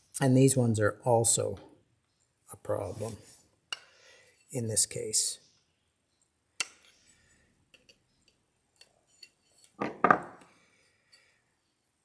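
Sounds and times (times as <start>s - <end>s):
pliers clattering on workbench: 9.2s - 10.5s.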